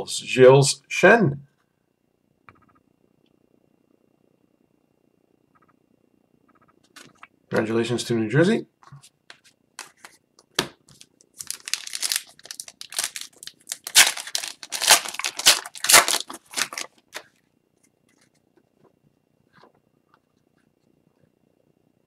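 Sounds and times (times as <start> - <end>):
plastic wrapper tearing and crinkling: 10.9 - 17.3.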